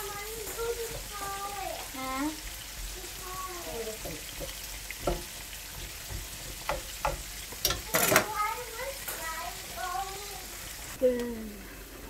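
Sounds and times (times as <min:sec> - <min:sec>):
chicken frying in hot oil: 0:00.0 - 0:12.0
metal tongs clicking on pan: 0:06.6 - 0:08.4.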